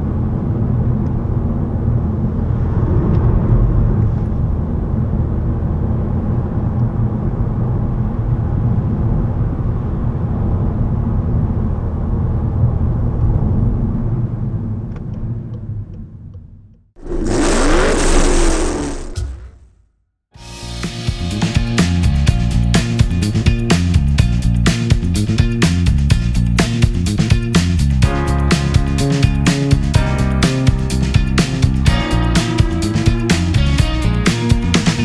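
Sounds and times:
road and tyre rumble: 0:00.0 - 0:19.6
rushing logo sound effect: 0:17.0 - 0:19.6.

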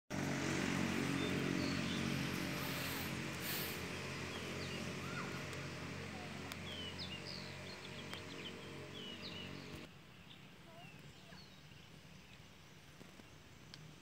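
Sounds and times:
excavator diesel engine running: 0:00.1 - 0:09.9
bird chirps: 0:04.3 - 0:12.4.

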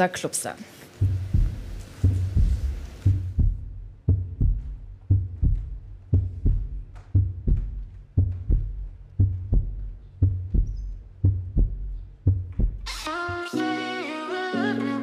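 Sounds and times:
low bass: 0:01.0 - 0:12.9
deep double thump beat: 0:01.0 - 0:13.4.

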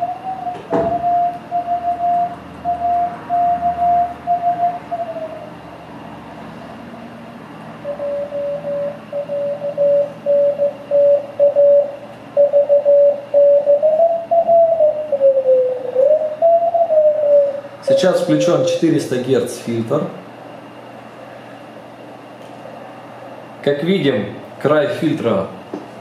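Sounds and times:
morse code beat tone: 0:00.0 - 0:05.1, 0:07.8 - 0:14.7.

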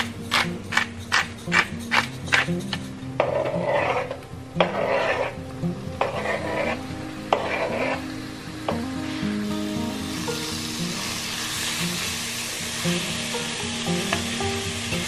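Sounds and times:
background music: 0:00.0 - 0:15.0
scraping on cutting board: 0:03.2 - 0:05.4, 0:06.0 - 0:08.1
chicken sizzling in frying pan: 0:06.2 - 0:15.0.

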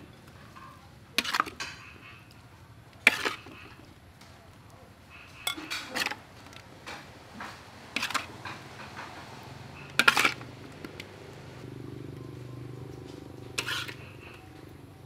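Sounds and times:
spatula scraping metal wok: 0:01.2 - 0:01.9, 0:03.0 - 0:03.8, 0:05.2 - 0:06.2, 0:07.4 - 0:10.5, 0:13.6 - 0:14.4.

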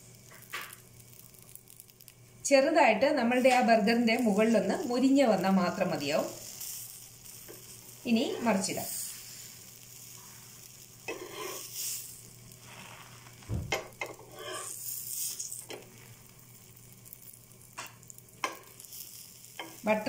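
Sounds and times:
butter sizzling on a pan: 0:00.0 - 0:20.0
spatula scraping: 0:11.1 - 0:11.9, 0:14.0 - 0:15.3
burger thumping onto pan: 0:13.4 - 0:14.0.

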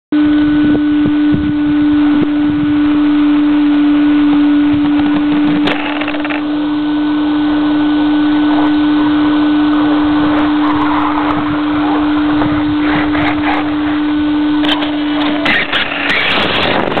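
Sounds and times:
rc car motor droning: 0:00.6 - 0:17.0
rushing track noise: 0:09.8 - 0:17.0.

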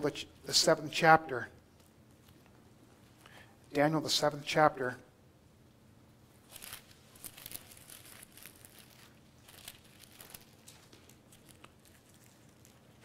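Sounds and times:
book pages turning: 0:06.4 - 0:13.0.

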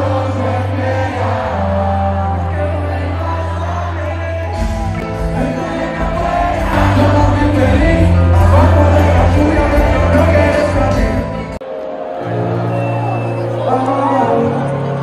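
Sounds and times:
person singing over heavy bass: 0:00.0 - 0:11.6.

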